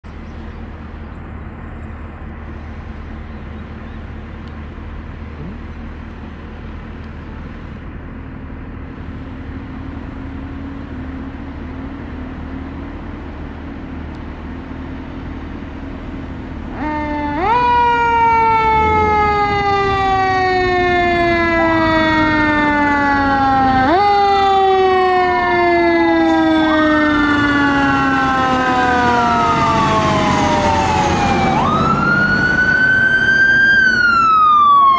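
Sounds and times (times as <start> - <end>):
street traffic with engine hum: 0.0 - 34.9
fire engine siren: 9.0 - 34.9
rising and falling siren tone: 16.6 - 34.9.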